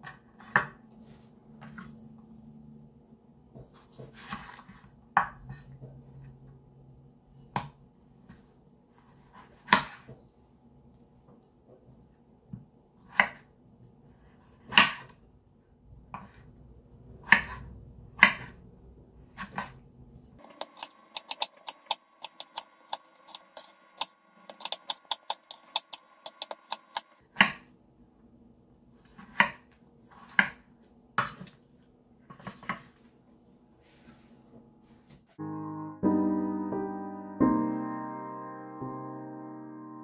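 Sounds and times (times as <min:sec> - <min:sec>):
knife chopping on cutting board: 0:09.3 - 0:10.1, 0:14.6 - 0:15.1, 0:17.2 - 0:18.5, 0:20.4 - 0:27.6, 0:29.0 - 0:29.6, 0:30.2 - 0:30.6.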